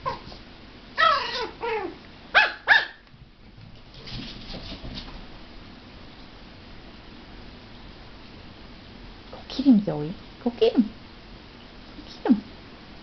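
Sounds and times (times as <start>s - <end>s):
dog whining: 0.0s - 0.4s, 1.0s - 2.5s
dog yipping: 0.0s - 0.4s, 1.0s - 3.0s.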